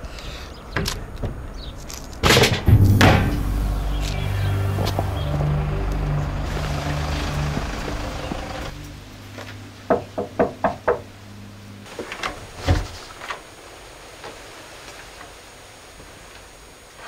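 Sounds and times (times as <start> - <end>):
heavy door thud: 2.5 - 5.6
background music: 2.7 - 10.5.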